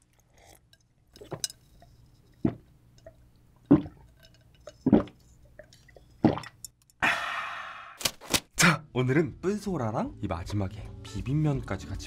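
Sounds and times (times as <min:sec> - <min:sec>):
person gulping water: 0:02.4 - 0:07.4.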